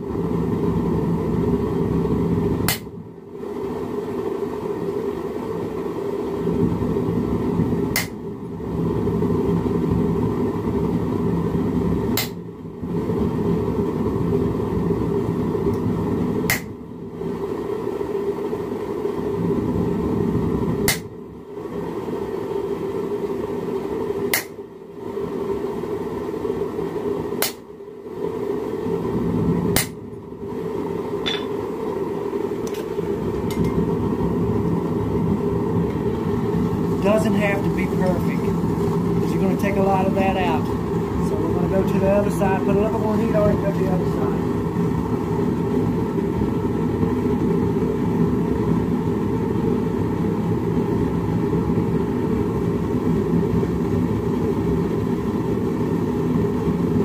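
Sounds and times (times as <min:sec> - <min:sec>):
gas forge roaring: 0:00.0 - 0:57.0
hammer striking chisel on steel: 0:31.3 - 0:31.6.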